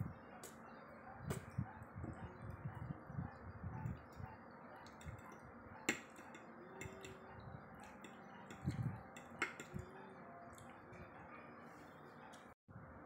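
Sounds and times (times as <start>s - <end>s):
soft chewing: 3.8s - 12.6s
fork clinking against plate: 4.8s - 9.9s.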